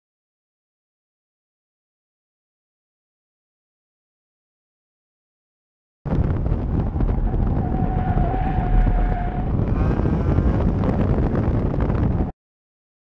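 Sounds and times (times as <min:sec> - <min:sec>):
car engine: 0:06.1 - 0:11.2
wind buffeting microphone: 0:06.1 - 0:12.3
tyres squealing: 0:07.0 - 0:09.6.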